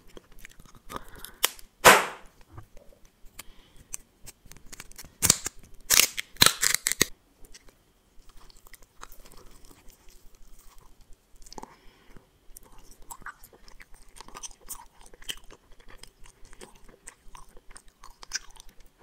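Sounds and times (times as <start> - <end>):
soft mouth sounds: 0.0 - 1.5
plastic wrapper crinkling and tearing: 4.2 - 11.1.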